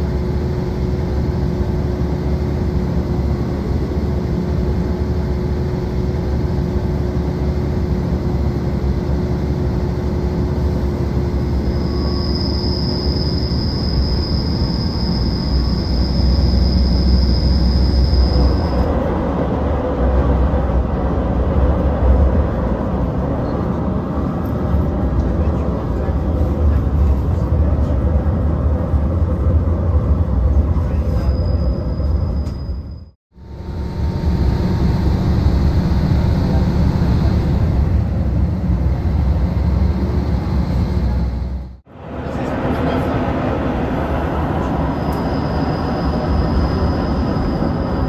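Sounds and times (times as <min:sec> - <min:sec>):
diesel engine running: 0:00.0 - 0:31.9, 0:33.4 - 0:48.0
wheel-on-rail rumble: 0:06.4 - 0:33.1
thin high whine: 0:10.7 - 0:19.1, 0:30.8 - 0:48.0.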